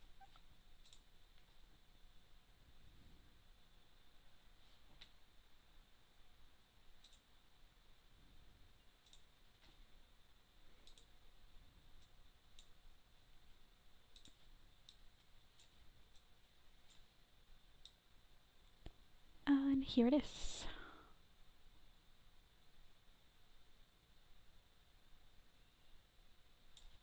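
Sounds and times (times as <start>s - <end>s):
faint computer mouse clicks: 7.0s - 7.3s, 9.0s - 9.3s, 10.8s - 11.1s, 14.1s - 15.0s, 26.7s - 27.0s.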